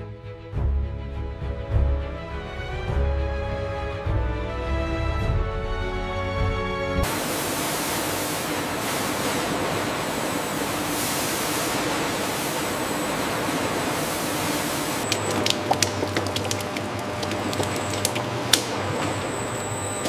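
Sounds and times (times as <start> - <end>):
music: 0.0 - 7.1
water spraying from nozzles: 7.0 - 20.0.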